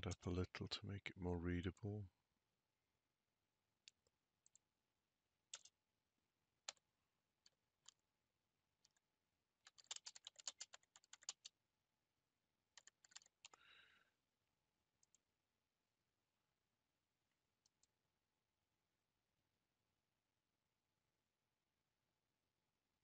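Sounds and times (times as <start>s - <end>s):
keyboard typing: 5.5s - 5.8s, 6.6s - 6.8s, 9.6s - 11.6s, 12.7s - 13.6s.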